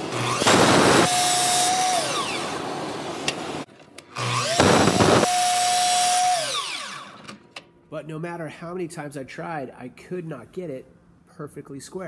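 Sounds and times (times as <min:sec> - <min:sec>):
miter saw motor whine: 0:00.0 - 0:03.6, 0:04.2 - 0:07.2.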